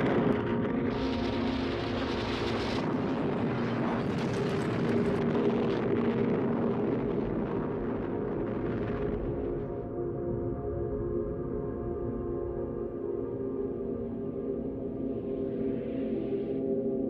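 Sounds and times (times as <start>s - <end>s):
rumble of collapsing buildings: 0.0s - 12.7s
low droning tone: 0.0s - 17.0s.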